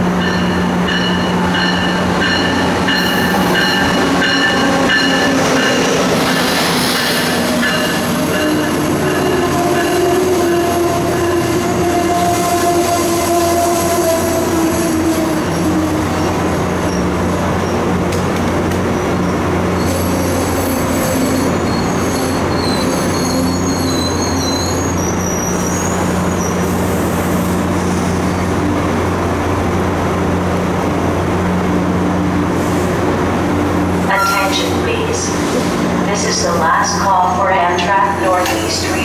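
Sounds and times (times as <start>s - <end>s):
train cars rolling past: 0.0s - 39.0s
high-pitched wheel squeal: 19.8s - 28.4s.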